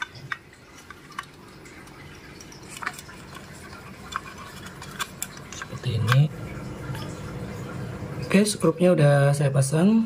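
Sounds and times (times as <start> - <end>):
plastic parts clicking and tapping: 0.0 - 6.3.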